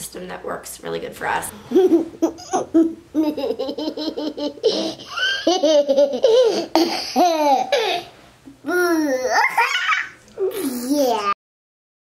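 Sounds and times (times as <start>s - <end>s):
toddler laughing: 1.7s - 8.1s, 8.7s - 11.4s
toddler squealing: 9.1s - 10.2s.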